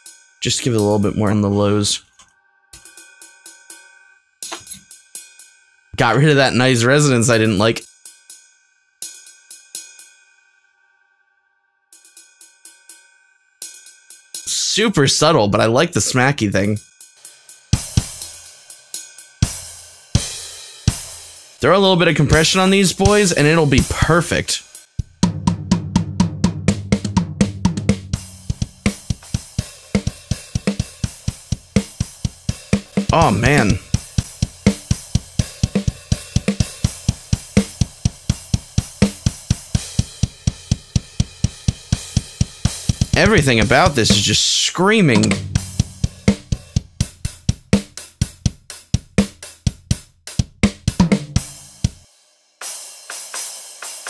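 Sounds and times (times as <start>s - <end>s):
rapid drum hits: 25.0s - 44.4s, 45.1s - 52.0s
steady low note: 45.1s - 46.7s
cymbal crash: 45.2s - 47.3s.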